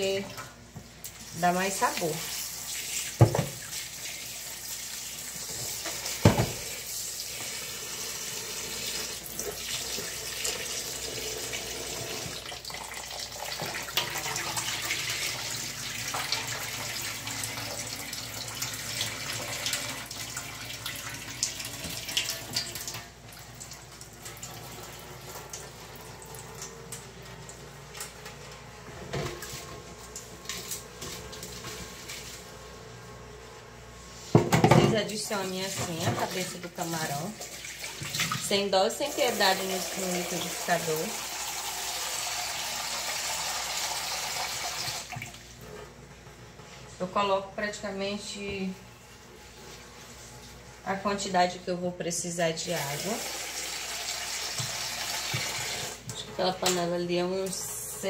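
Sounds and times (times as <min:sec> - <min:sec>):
water splashing over colander: 0:00.0 - 0:28.0, 0:34.6 - 0:45.5, 0:52.7 - 0:57.5
tap water running into sink: 0:00.0 - 0:28.4, 0:35.6 - 0:45.4, 0:52.8 - 0:56.8.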